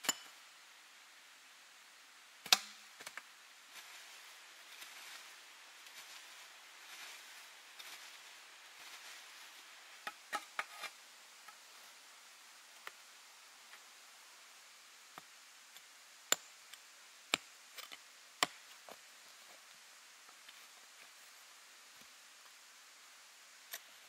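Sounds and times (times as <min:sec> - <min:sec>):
hand pick striking ground: 0:00.0 - 0:00.3, 0:17.3 - 0:18.6.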